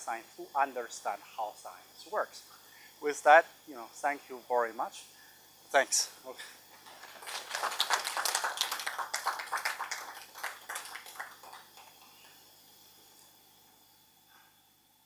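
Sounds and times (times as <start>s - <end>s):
small crowd applauding: 6.8s - 12.5s.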